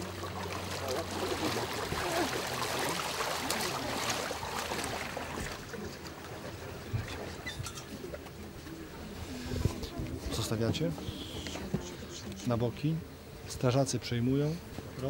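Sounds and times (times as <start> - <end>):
water splashing underfoot: 0.0 - 8.8.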